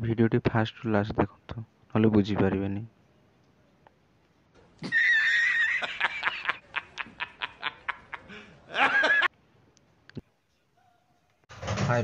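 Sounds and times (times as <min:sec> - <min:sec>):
man laughing hard: 0:04.8 - 0:09.3.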